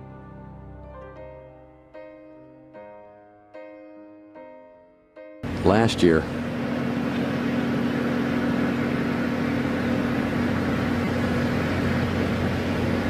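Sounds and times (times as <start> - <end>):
low hum: 5.4 - 13.0.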